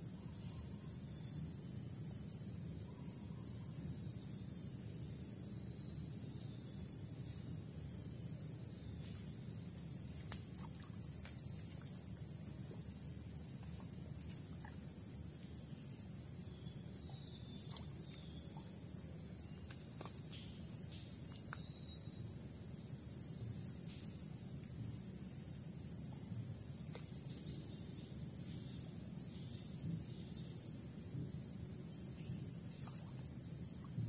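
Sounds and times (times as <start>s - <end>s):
high-pitched insect chorus: 0.0s - 34.0s
faint ticks: 9.0s - 12.8s, 19.6s - 21.8s.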